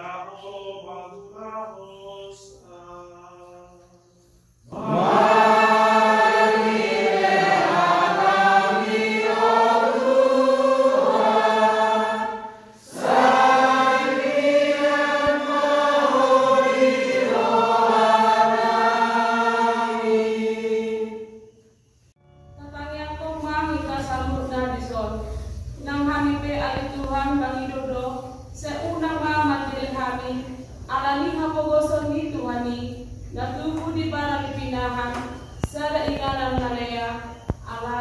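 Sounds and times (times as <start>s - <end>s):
man chanting a sung prayer: 0.0s - 4.0s.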